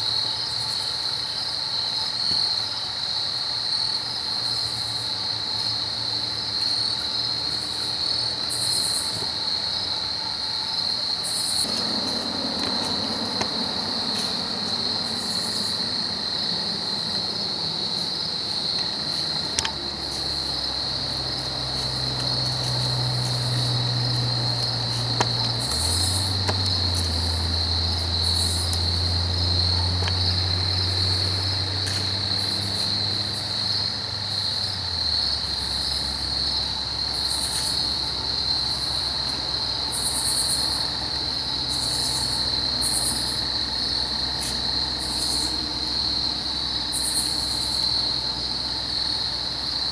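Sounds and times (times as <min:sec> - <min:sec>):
crickets trilling: 0:00.0 - 0:49.9
low hum: 0:11.6 - 0:33.7.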